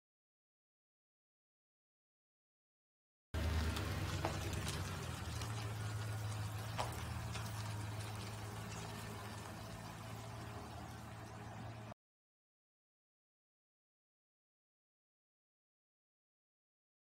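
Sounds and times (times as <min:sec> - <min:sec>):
pickup truck engine running: 0:03.4 - 0:11.9.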